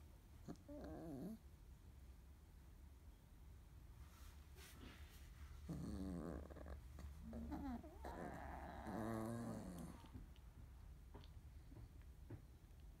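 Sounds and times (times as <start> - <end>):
puppies snoring: 0.4 - 1.5, 5.5 - 10.4.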